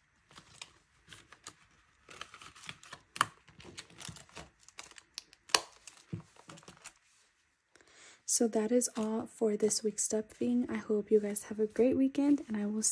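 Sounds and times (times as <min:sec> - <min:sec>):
paper bills and vinyl rustling: 0:00.1 - 0:07.4, 0:08.7 - 0:12.9.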